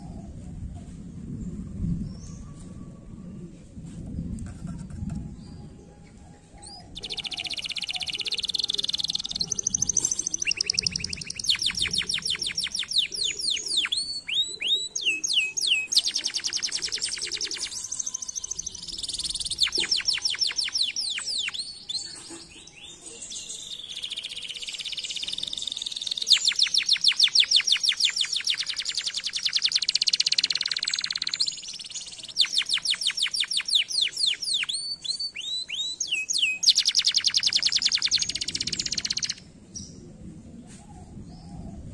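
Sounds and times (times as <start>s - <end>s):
canary singing: 6.6s - 39.5s.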